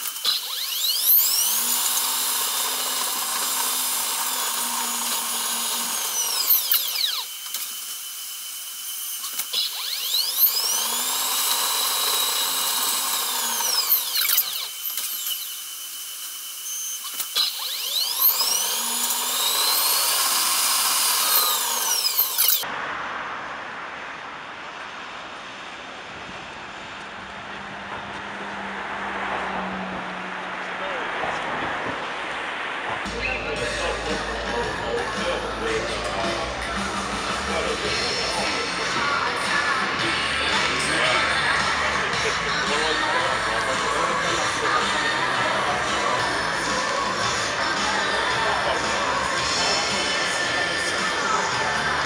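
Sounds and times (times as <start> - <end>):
outdoor background noise: 0.0 - 52.0
electric train whine: 24.8 - 52.0.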